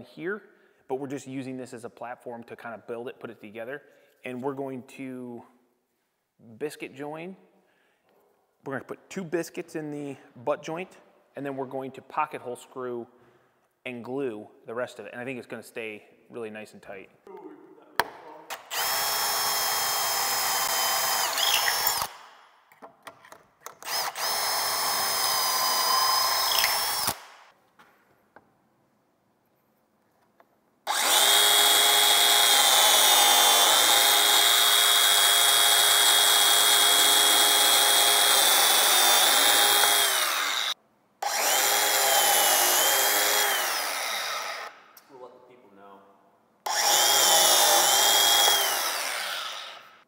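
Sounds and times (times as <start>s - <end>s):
cordless drill boring into wood: 18.5s - 22.3s, 23.8s - 27.4s, 30.9s - 44.8s, 46.7s - 50.0s
biscuit joiner motor whine: 30.9s - 44.7s, 46.7s - 49.8s.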